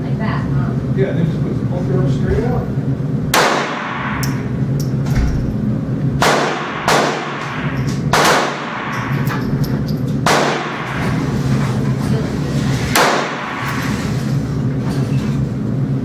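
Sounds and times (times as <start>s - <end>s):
steady low hum: 0.0s - 16.0s
pistol shots: 3.3s - 4.4s, 6.2s - 9.4s, 10.2s - 11.2s, 12.9s - 13.9s.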